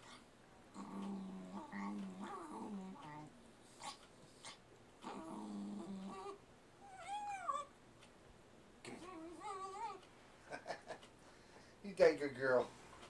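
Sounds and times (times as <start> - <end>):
small dog growling: 0.0 - 7.7, 8.8 - 10.0
dog whining: 0.8 - 7.7, 8.8 - 10.0.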